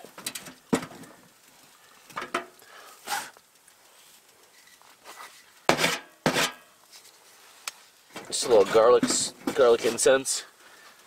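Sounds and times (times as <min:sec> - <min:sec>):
knocks and clatter of handling: 0:00.0 - 0:01.2, 0:02.1 - 0:02.6, 0:08.1 - 0:10.0.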